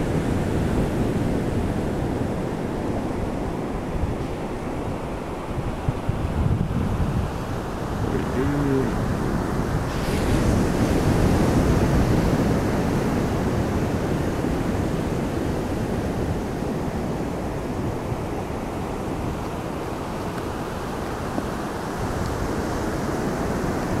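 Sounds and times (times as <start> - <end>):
ocean surf rushing: 0.0 - 24.0
wind on microphone: 0.0 - 24.0.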